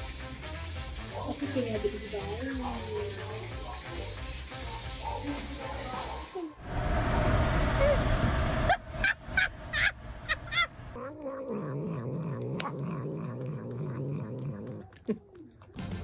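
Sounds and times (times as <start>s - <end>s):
cat growling: 10.6s - 15.8s.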